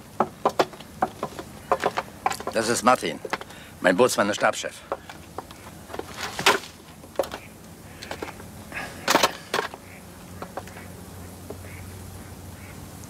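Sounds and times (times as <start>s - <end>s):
sharp knocks and clatters: 0.0s - 3.6s, 4.3s - 8.4s, 9.0s - 9.8s, 10.4s - 10.9s
footsteps on boat woodwork: 0.0s - 8.4s.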